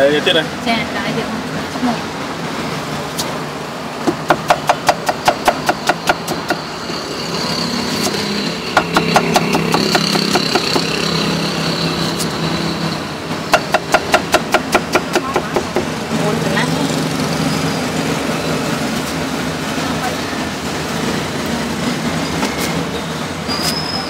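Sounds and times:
steady engine-like hum: 0.0 - 24.0
cleaver chopping on wooden board: 4.1 - 6.6, 8.8 - 11.0, 13.5 - 15.9.

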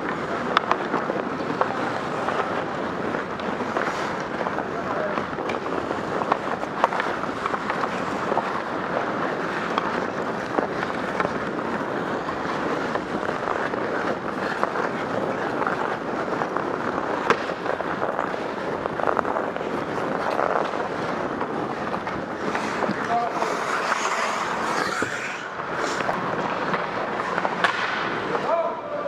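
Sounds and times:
hockey sticks clacking: 0.0 - 29.0
skates scraping ice: 0.0 - 29.0
steady rushing noise: 0.0 - 29.0
loud crack: 22.1 - 28.4.

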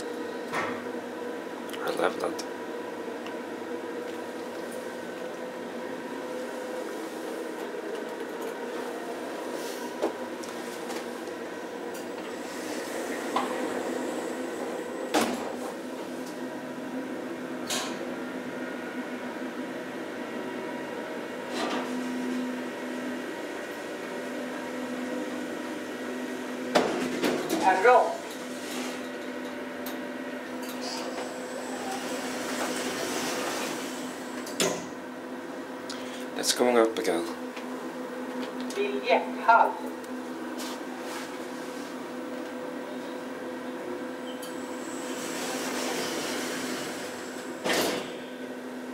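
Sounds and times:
elevator mechanical hum: 0.0 - 48.9
elevator doors sliding open: 12.0 - 15.7, 30.8 - 34.6, 44.2 - 48.3.

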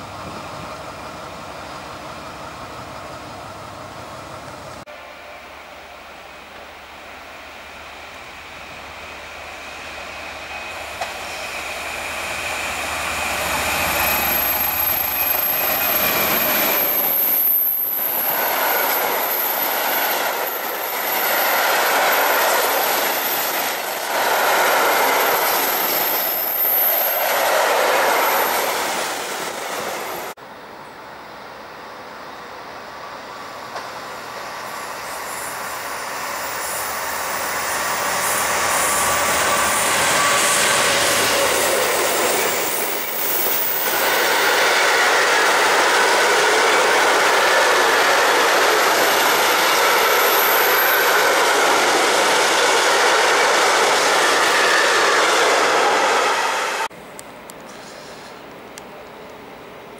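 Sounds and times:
diesel locomotive engine: 0.0 - 59.9
high thin wheel squeal: 9.2 - 30.3, 34.4 - 56.8.

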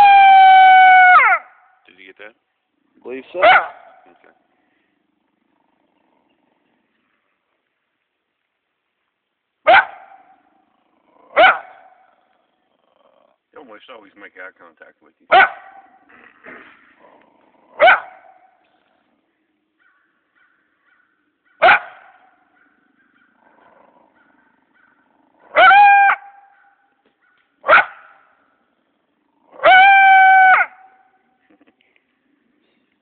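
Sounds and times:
coyote barking: 3.1 - 4.4, 9.6 - 10.6, 11.3 - 12.4, 15.3 - 16.2, 17.7 - 18.8, 19.7 - 31.2
coyote drawn-out calls: 19.8 - 23.5, 24.1 - 28.2, 29.5 - 31.2.

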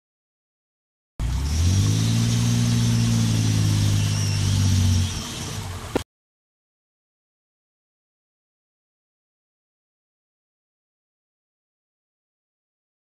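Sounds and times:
truck engine pulling: 1.2 - 6.0.

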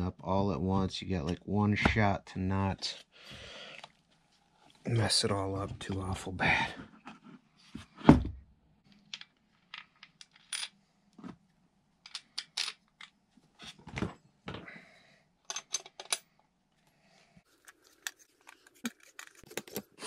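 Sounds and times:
tools clicking and knocking on workbench: 15.5 - 16.3.

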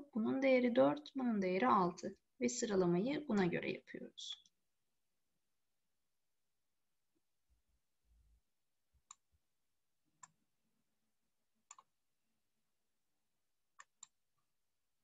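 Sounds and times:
computer mouse clicks: 11.6 - 11.9, 13.8 - 14.2.

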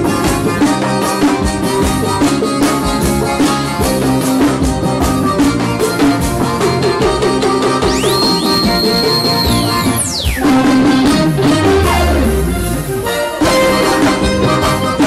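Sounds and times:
accordion: 0.0 - 15.0
drums: 0.0 - 15.0
electric guitar: 0.0 - 15.0
horns: 7.7 - 15.0.

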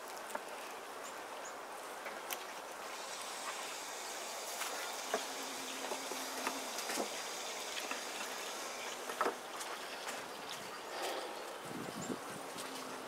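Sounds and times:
honeybees humming: 2.8 - 13.0.

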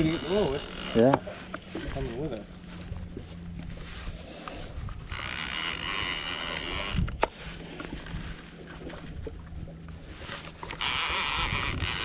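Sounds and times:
fishing reel click: 0.0 - 1.2, 5.1 - 7.3, 10.6 - 12.0
fishing reel rattling: 0.0 - 1.3, 4.6 - 7.3, 10.4 - 12.0.

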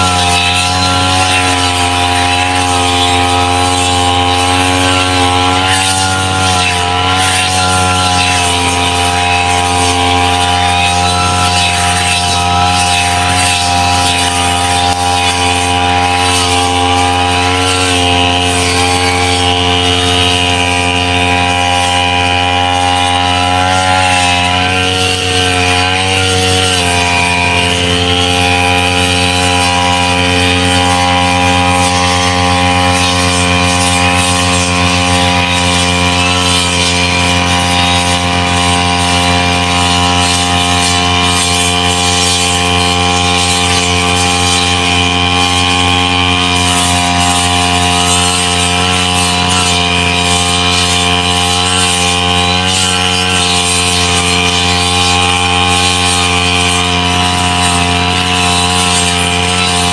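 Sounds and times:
brush cutter engine running: 0.0 - 59.9.

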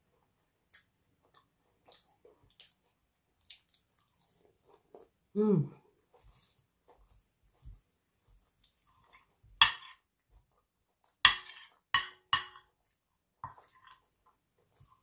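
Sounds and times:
cutlery clinking on a plate: 9.6 - 10.0, 11.3 - 12.7.

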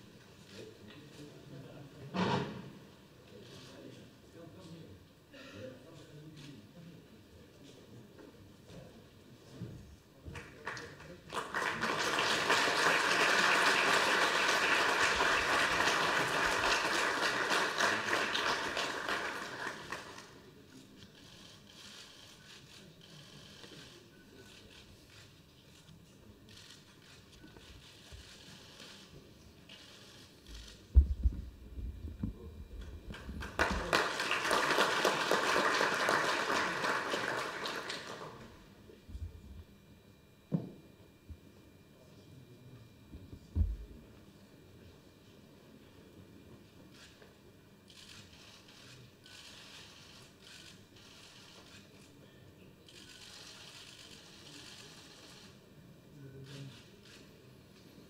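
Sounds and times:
audience applauding: 10.4 - 20.4, 33.1 - 38.5.

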